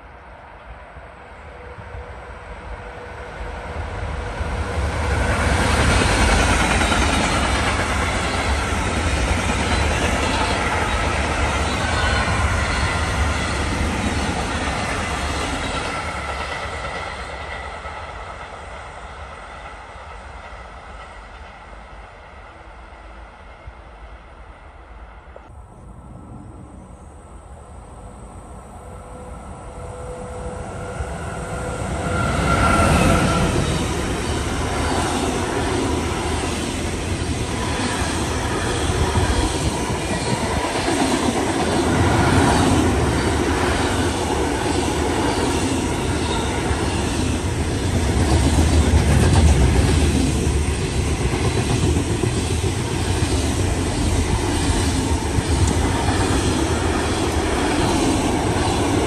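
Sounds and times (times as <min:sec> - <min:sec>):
train passing: 0:00.0 - 0:59.0.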